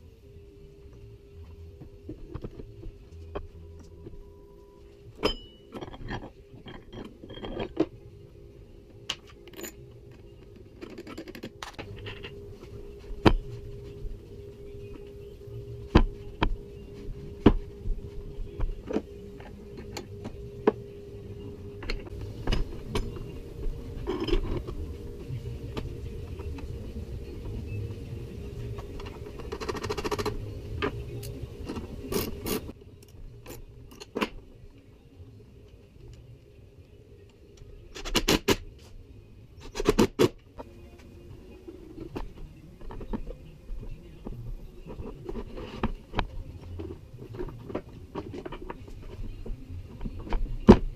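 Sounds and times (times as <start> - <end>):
steady low hum: 0.0 - 50.9
metal parts knocking and scraping: 5.1 - 8.1, 9.1 - 13.9, 18.4 - 20.9, 21.8 - 26.7, 28.5 - 34.4, 41.6 - 50.9.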